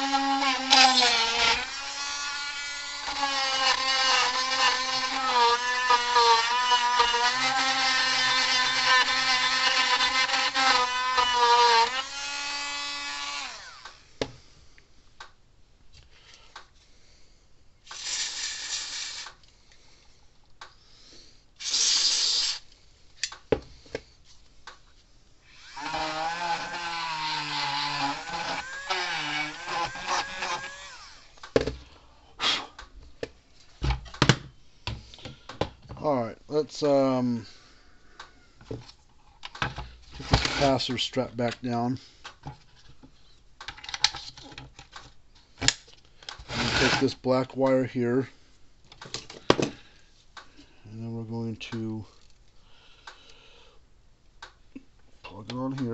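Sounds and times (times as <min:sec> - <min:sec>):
rotary tool whining: 0:00.0 - 0:14.0, 0:25.4 - 0:31.4
short hissing bursts: 0:17.8 - 0:19.4, 0:21.6 - 0:22.7.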